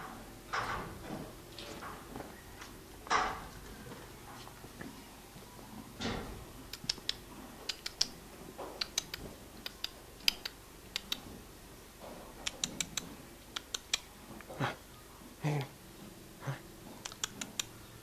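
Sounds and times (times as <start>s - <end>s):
sharp irregular clicks: 6.7s - 8.2s, 8.8s - 11.3s, 12.4s - 14.1s, 17.0s - 17.8s.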